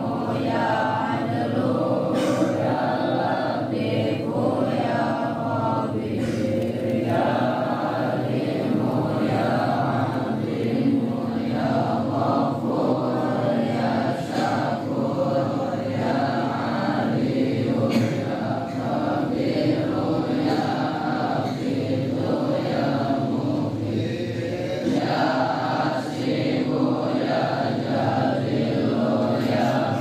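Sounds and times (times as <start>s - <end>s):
men and boys chanting in unison: 0.0s - 30.0s.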